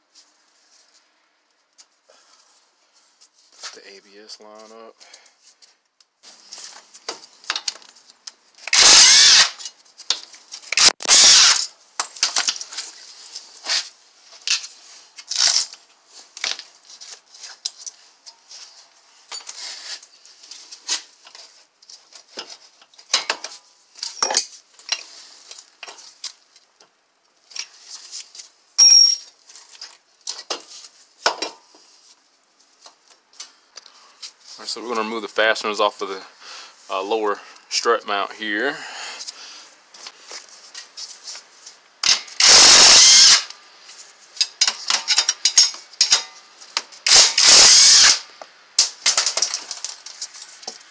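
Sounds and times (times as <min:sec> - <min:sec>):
metal tools clinking: 0:14.4 - 0:14.8, 0:16.4 - 0:17.0, 0:23.1 - 0:25.1, 0:28.8 - 0:29.4, 0:41.3 - 0:42.5, 0:44.4 - 0:46.4
short metallic rings: 0:28.8 - 0:29.3.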